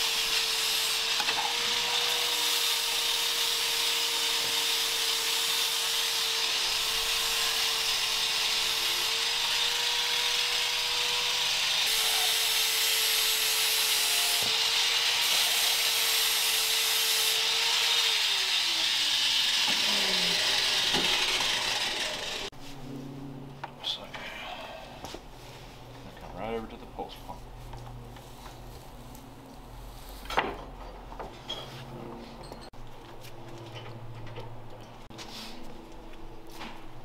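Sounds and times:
power tool motor whining: 0:00.0 - 0:22.5.

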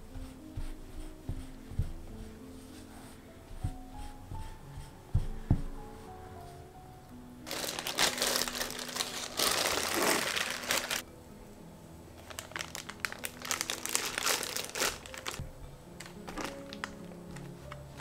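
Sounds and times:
soft music: 0:00.0 - 0:18.0
plastic bag crinkling: 0:07.5 - 0:11.0, 0:12.2 - 0:15.4, 0:16.0 - 0:18.0.

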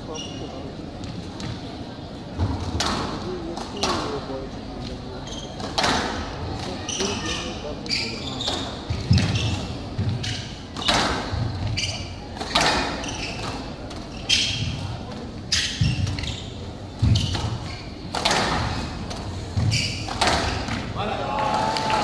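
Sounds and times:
squash ball hitting rackets and walls: 0:05.5 - 0:07.4, 0:08.4 - 0:16.3, 0:16.9 - 0:21.0.

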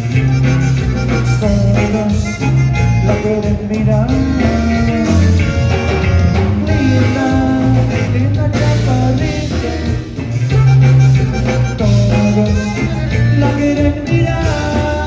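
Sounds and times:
accordion melody: 0:00.0 - 0:15.0
bass guitar: 0:00.0 - 0:15.0
drum kit: 0:00.0 - 0:15.0
electric guitar: 0:00.0 - 0:15.0.

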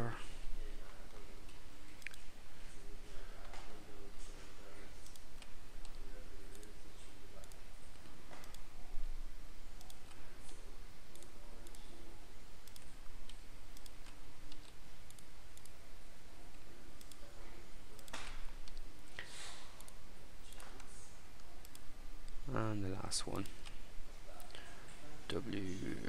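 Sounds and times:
computer mouse clicking: 0:02.0 - 0:02.3, 0:05.0 - 0:06.7, 0:07.4 - 0:08.7, 0:09.8 - 0:11.9, 0:12.6 - 0:15.8, 0:16.5 - 0:17.3, 0:18.0 - 0:18.9, 0:19.8 - 0:22.4.

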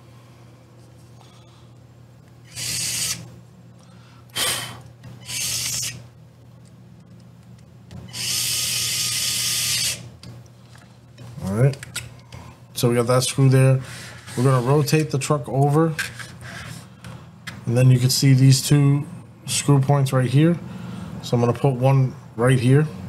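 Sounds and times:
electric screwdriver driving screw: 0:02.5 - 0:03.2, 0:05.2 - 0:06.0, 0:08.1 - 0:10.1.

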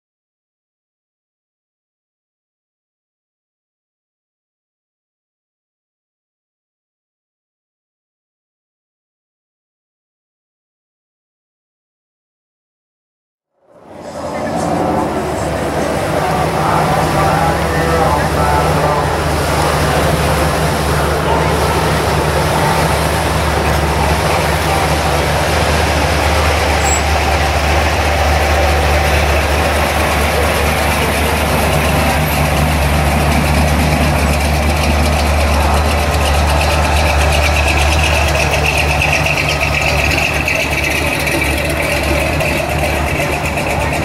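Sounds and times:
car engine rumbling: 0:13.6 - 0:44.0
pickup truck engine idling: 0:13.8 - 0:44.0.

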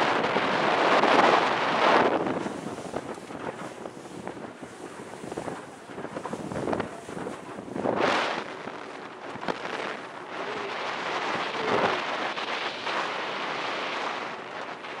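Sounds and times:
water rushing past boat: 0:00.0 - 0:15.0
wind buffeting microphone: 0:00.0 - 0:15.0
wind rushing: 0:00.0 - 0:15.0.

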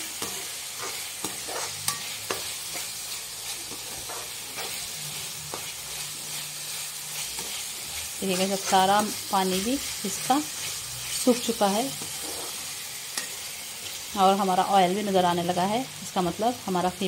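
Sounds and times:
metal spatula scraping a wok: 0:00.0 - 0:14.0
meat sizzling in oil: 0:00.0 - 0:17.0.

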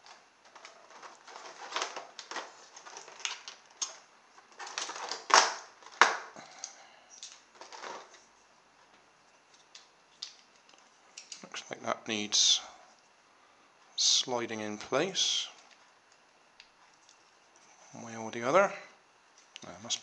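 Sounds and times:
plastic toy pieces clicking and rattling: 0:00.0 - 0:06.3.

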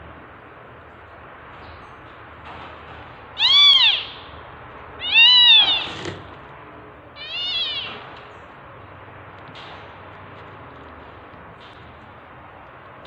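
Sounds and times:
kitten mewing: 0:05.0 - 0:06.3, 0:07.2 - 0:08.0.

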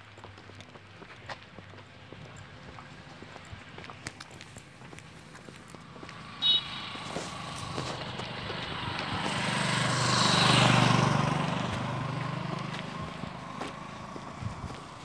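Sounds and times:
vehicle passing on road: 0:00.1 - 0:15.0
short high beep: 0:06.4 - 0:07.0.

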